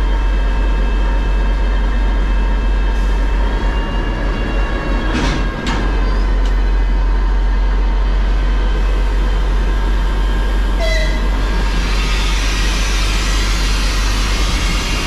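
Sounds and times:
locomotive running: 0.0s - 15.0s
locomotive toot: 10.7s - 11.6s.

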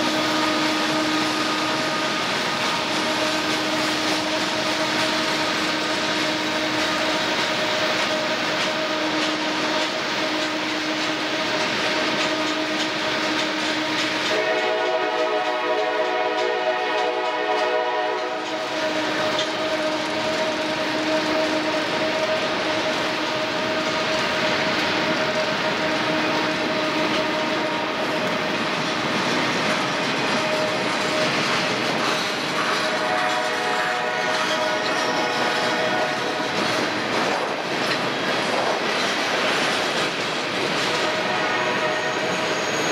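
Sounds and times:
train horn: 0.0s - 28.7s, 29.3s - 37.0s, 40.8s - 42.9s
train wheels clicking over rail joints: 0.0s - 42.9s
wheels squealing: 40.9s - 42.9s.

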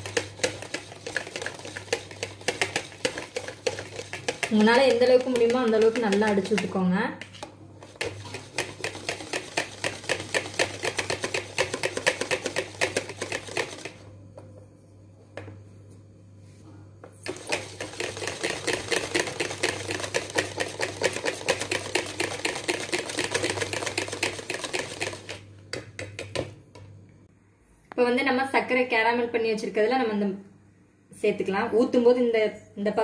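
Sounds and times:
whisk beating in plastic bowl: 0.0s - 14.1s, 17.2s - 26.5s.

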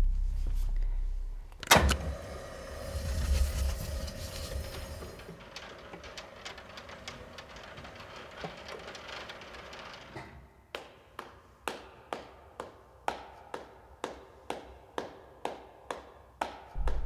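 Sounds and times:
curtain sliding along track: 2.0s - 10.3s
curtain motor running: 2.1s - 10.2s.

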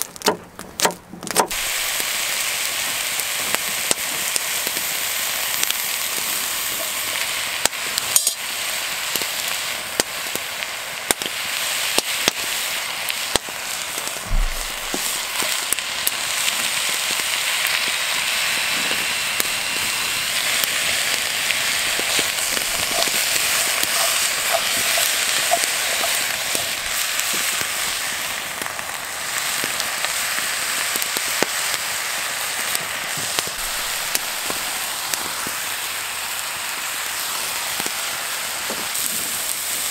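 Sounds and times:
meat sizzling with pops: 0.0s - 39.9s.

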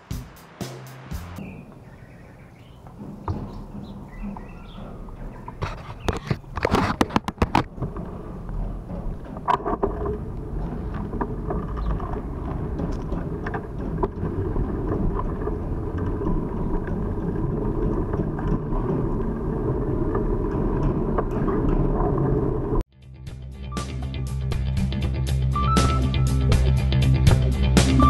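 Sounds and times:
moving vehicle rumble: 0.0s - 22.8s
wind on microphone: 1.4s - 22.8s.

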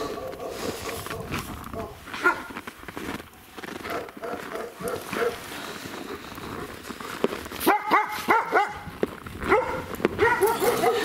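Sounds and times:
dog yapping: 7.7s - 8.8s, 9.5s - 11.0s.

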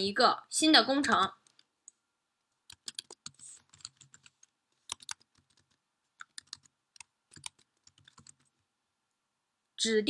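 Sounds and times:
keyboard keystrokes and clicks: 2.7s - 8.6s.

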